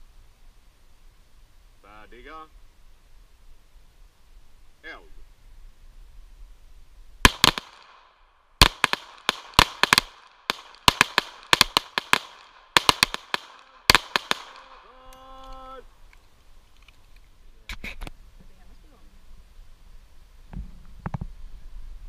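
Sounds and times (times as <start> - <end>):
pistol shots echoing: 7.3 - 14.9.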